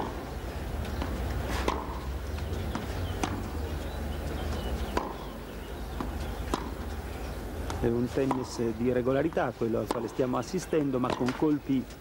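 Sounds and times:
racket striking tennis ball: 0:00.0 - 0:00.3, 0:00.9 - 0:03.6, 0:04.8 - 0:06.9, 0:07.6 - 0:08.6, 0:09.8 - 0:10.2, 0:11.0 - 0:11.5
tennis ball bouncing on clay: 0:00.0 - 0:07.0, 0:07.6 - 0:11.8.

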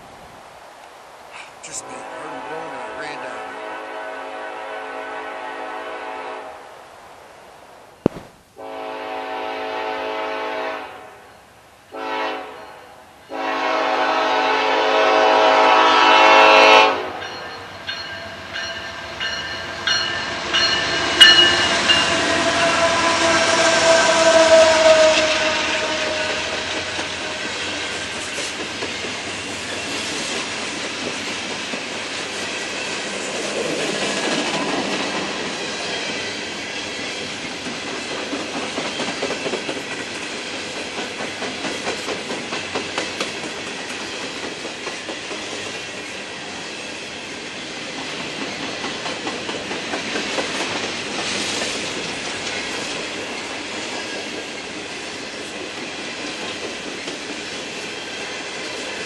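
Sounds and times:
diesel locomotive engine: 0:13.3 - 0:59.0
train cars rumbling and clacking: 0:17.1 - 0:59.0.

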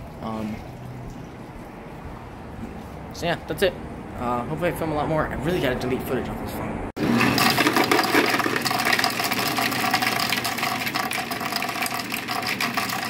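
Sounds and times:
ice cubes clattering: 0:07.0 - 0:13.0
ice dispenser motor humming: 0:07.0 - 0:13.0.

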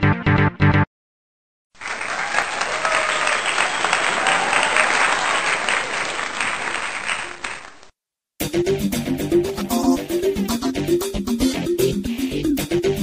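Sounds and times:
crowd applauding: 0:01.8 - 0:07.9.

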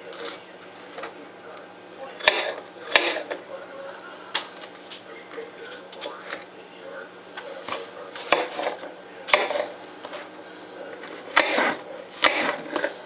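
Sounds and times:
knife slicing through apple: 0:02.2 - 0:03.3, 0:08.2 - 0:09.8, 0:11.2 - 0:12.9.

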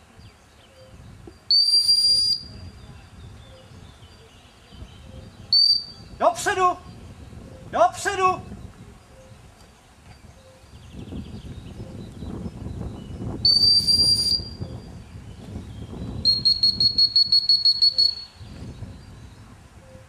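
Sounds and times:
dog whistle blasts: 0:01.5 - 0:02.5, 0:05.5 - 0:06.0, 0:13.4 - 0:14.6, 0:16.2 - 0:18.3.

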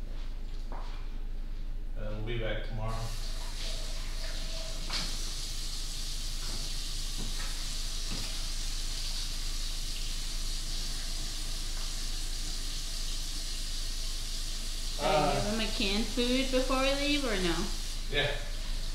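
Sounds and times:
steady hiss: 0:02.1 - 0:18.9.

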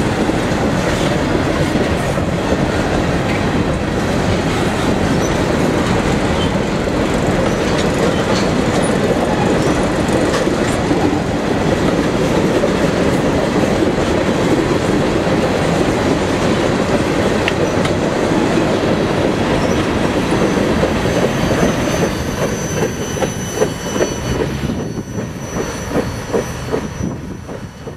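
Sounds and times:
train wheels rumbling on rails: 0:00.0 - 0:27.9
wheels clicking over rail joints: 0:00.0 - 0:27.9
high wheel squeal: 0:04.4 - 0:13.7, 0:19.3 - 0:27.9.

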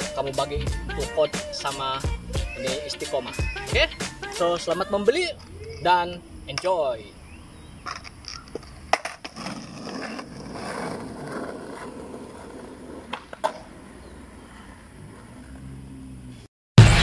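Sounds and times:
skateboard wheels rolling on asphalt: 0:06.5 - 0:16.4
skateboard clacks: 0:07.9 - 0:13.7.

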